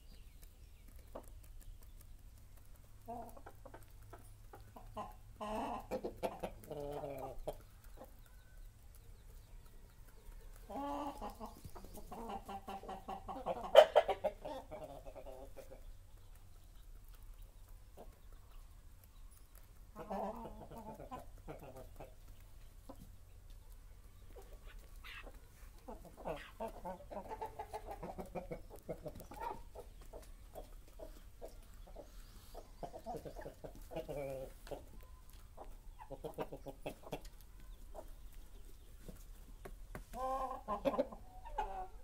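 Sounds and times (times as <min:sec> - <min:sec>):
chickens clucking and calling: 0:00.0 - 0:42.0.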